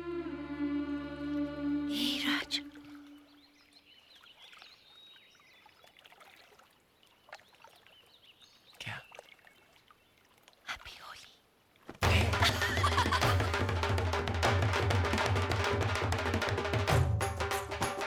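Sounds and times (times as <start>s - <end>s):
faint bird chirps: 7.0s - 10.2s.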